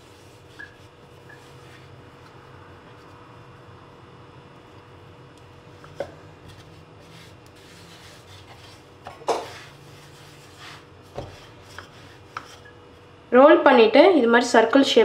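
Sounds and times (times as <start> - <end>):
rolling pin rolling dough: 0.0 - 3.2, 5.6 - 12.8.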